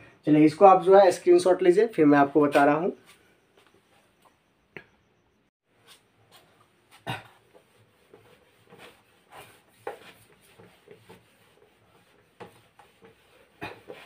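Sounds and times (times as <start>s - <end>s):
eraser wiping whiteboard: 7.4s - 14.0s.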